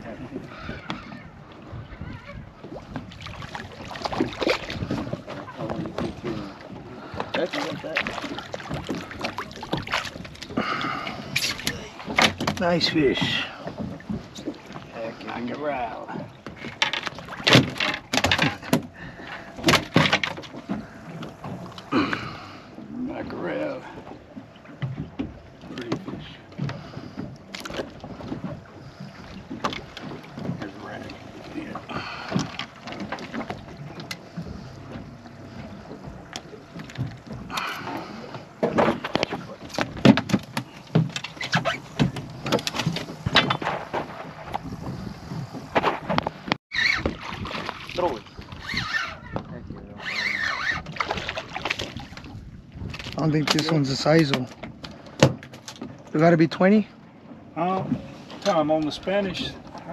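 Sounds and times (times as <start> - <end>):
wind buffeting microphone: 0.0 - 17.8, 18.4 - 50.1, 50.7 - 56.8
fish knocking and slapping on deck: 11.3 - 14.5, 16.4 - 22.2, 35.9 - 48.0, 50.9 - 56.0.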